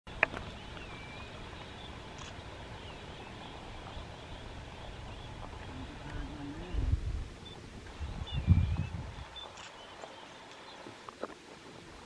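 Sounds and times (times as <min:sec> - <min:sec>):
steady background hiss: 0:00.1 - 0:12.0.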